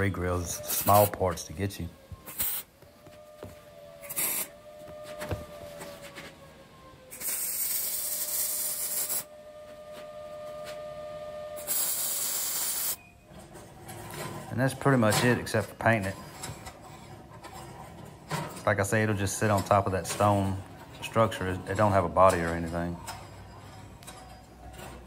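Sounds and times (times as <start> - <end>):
welding arc crackling and sizzling: 2.3 - 2.7, 4.0 - 4.6, 7.1 - 9.3, 11.6 - 13.0.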